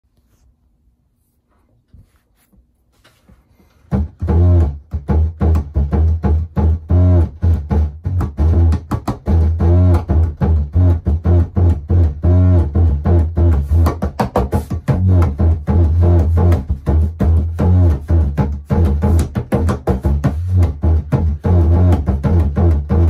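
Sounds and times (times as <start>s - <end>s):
hand drum groove: 3.9s - 23.0s.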